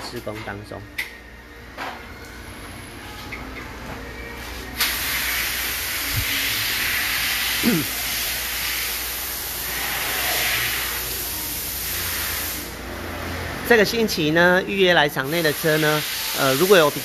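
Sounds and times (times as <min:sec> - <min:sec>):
compressed air hissing: 0:04.8 - 0:12.8, 0:15.2 - 0:17.0.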